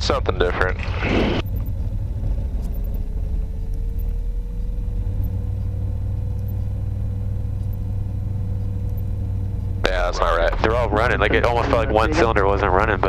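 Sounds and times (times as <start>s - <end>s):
aircraft engine low rumble: 0.0s - 13.0s
faint engine tone: 0.0s - 13.0s.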